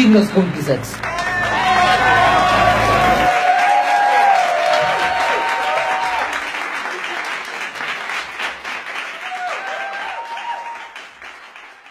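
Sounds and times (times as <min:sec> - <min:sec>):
crowd applauding: 0:00.8 - 0:11.9.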